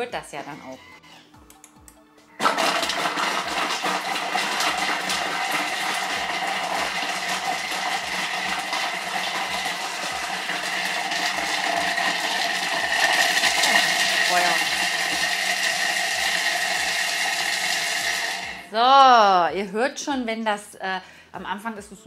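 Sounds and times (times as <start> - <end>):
food processor blades whirring: 2.4 - 18.7.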